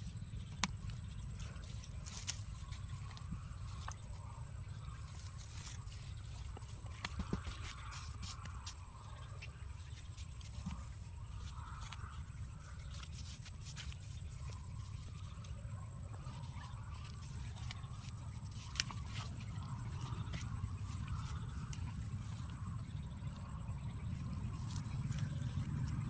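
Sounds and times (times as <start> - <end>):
low steady rumble: 0.0 - 26.0
small scrapes and clicks: 5.0 - 15.6, 16.2 - 22.5.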